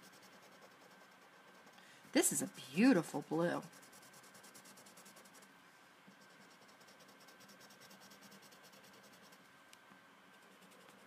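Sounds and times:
marker scratching on paper: 0:00.0 - 0:05.5, 0:06.1 - 0:09.5, 0:10.4 - 0:11.0.

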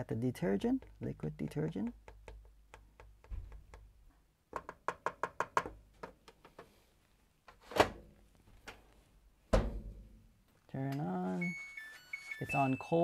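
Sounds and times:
plastic bottle clicks and taps: 0:00.7 - 0:03.9.

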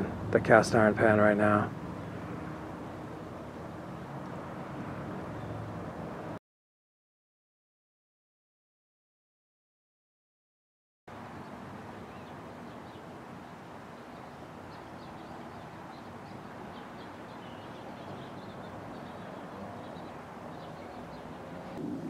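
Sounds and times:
small birds chirping: 0:11.3 - 0:21.8.

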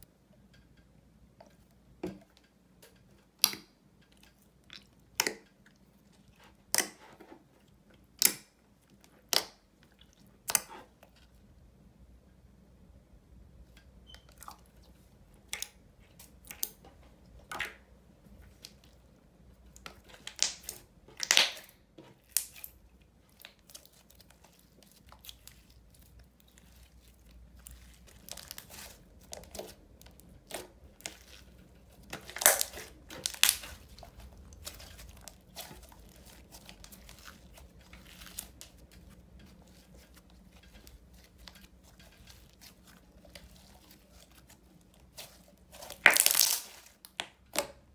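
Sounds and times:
slime crackling and popping: 0:20.0 - 0:47.8.

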